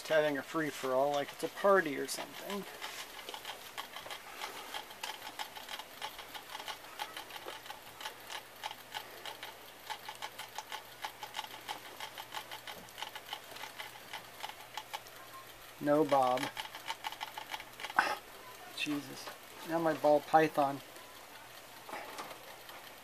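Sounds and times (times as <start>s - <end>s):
rats scrambling in wire cage: 0.0s - 23.0s.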